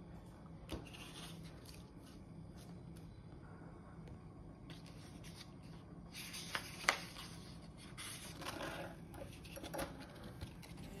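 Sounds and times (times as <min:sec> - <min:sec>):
paper pages rustling: 0:04.7 - 0:11.0.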